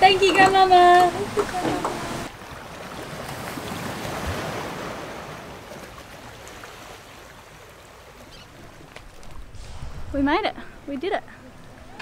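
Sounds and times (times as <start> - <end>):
sea surf rushing: 0.0 - 8.0.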